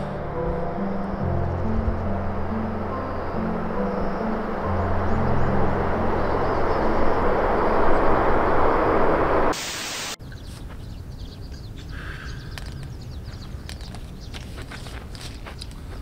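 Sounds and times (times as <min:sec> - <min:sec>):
broad rushing outdoor noise: 0:00.0 - 0:16.0
quiet outdoor ambience: 0:00.0 - 0:16.0.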